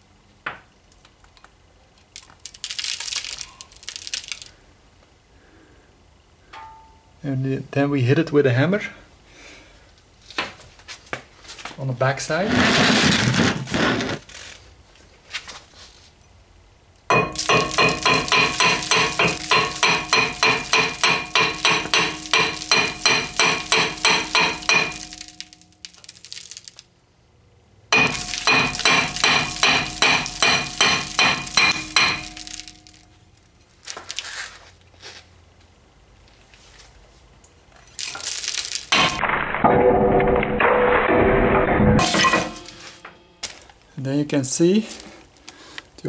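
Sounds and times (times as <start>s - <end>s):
hammer striking metal disc: 17.1s - 25.8s, 27.9s - 33.1s, 38.9s - 43.4s
metal disc ringing: 17.1s - 25.9s, 27.9s - 33.2s, 39.0s - 43.6s.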